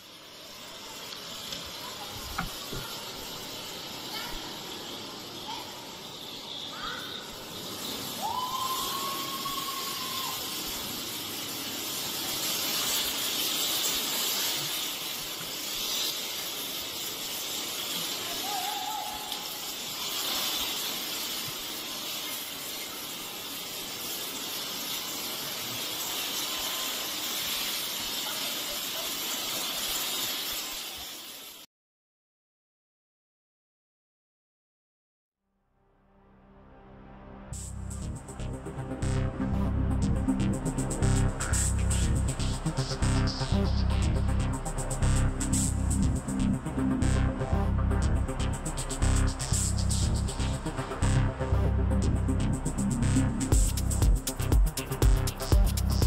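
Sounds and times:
person calling: 18.3 - 19.7.

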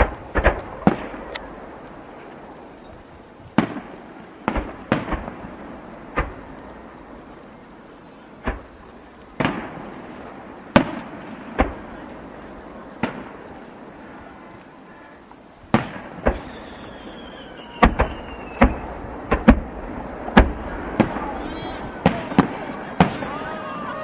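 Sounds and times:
fireworks shells bursting: 3.6 - 14.7, 15.7 - 23.5
faint falling whistle: 16.3 - 18.8.

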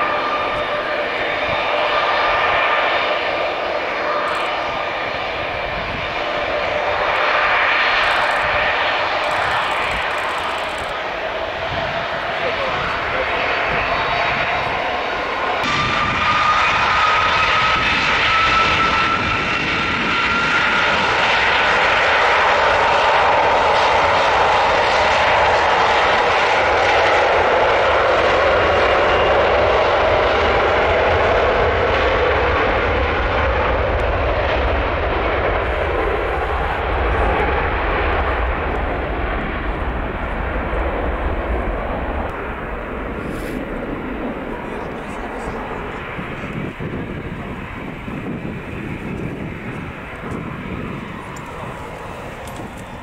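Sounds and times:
jet engines roaring: 0.0 - 53.0
deep low rumble: 33.6 - 53.0.

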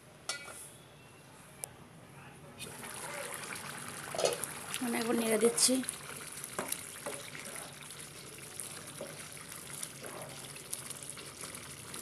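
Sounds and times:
rice bubbling in a pan: 2.6 - 12.0.

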